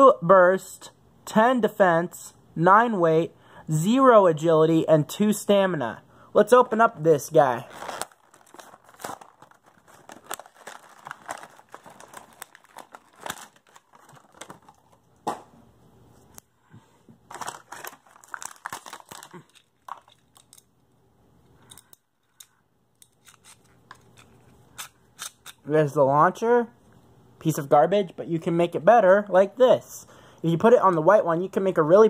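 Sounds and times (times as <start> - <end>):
plastic packaging crinkling and tearing: 7.4 - 15.1, 17.3 - 20.7.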